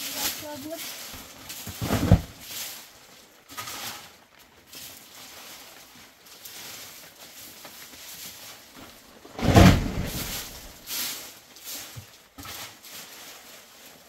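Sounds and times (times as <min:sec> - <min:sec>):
twig broom sweeping leaves: 0:00.0 - 0:14.0
wooden pole pushing leaves: 0:00.0 - 0:14.0
sharp thump: 0:09.4 - 0:10.7.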